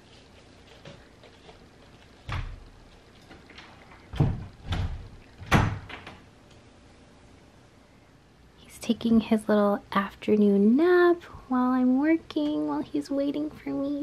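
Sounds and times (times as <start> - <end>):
cupboard doors knocking and thudding: 4.1 - 6.2.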